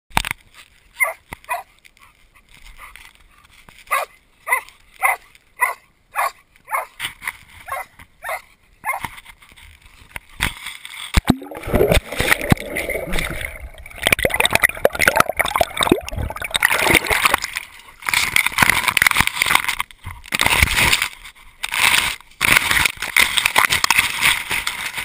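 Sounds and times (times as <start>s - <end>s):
dog barking: 1.0s - 1.7s, 3.9s - 7.0s, 7.7s - 9.0s
water splashing at microphone: 11.2s - 19.6s.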